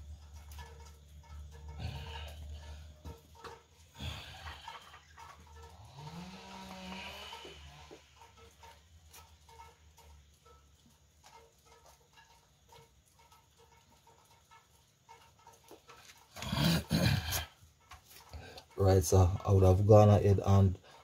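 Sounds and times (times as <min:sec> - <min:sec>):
loud animal call: 0:05.7 - 0:08.2.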